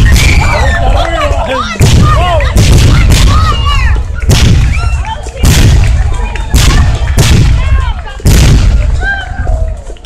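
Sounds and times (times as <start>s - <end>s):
fireworks booming: 1.8s - 9.2s.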